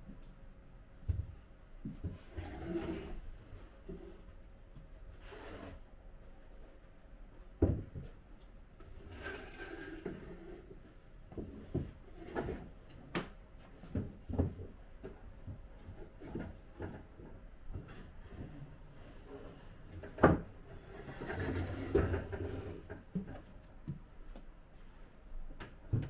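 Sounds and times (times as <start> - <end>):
wood scraping on wood: 5.2 - 5.8, 9.0 - 10.8, 17.8 - 23.4.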